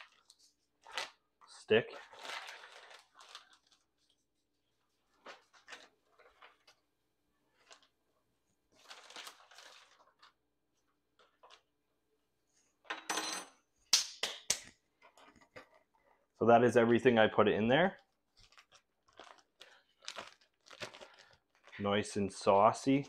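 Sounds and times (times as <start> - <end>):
plastic bag rustling: 0.0 - 11.8, 17.6 - 23.0.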